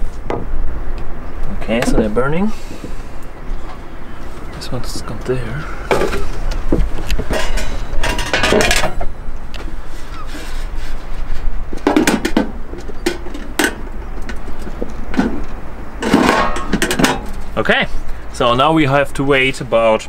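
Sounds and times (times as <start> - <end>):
wind rumble on microphone: 5.6 - 17.6
metal tray and lid clanking: 7.2 - 9.0, 16.0 - 17.5.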